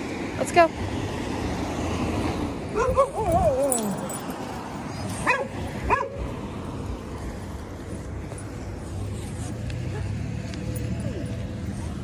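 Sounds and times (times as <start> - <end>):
dog yipping: 2.8 - 4.2, 5.2 - 6.2
dog whining: 2.8 - 4.3.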